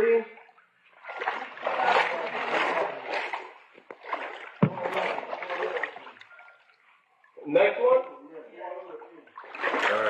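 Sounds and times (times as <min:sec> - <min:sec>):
water sloshing and splashing: 0:00.0 - 0:07.4, 0:09.1 - 0:10.0
sharp knock: 0:04.6 - 0:05.0.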